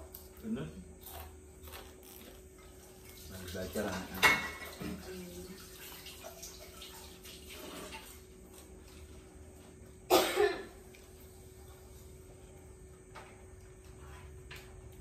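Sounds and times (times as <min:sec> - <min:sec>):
person coughing: 0:10.1 - 0:10.8.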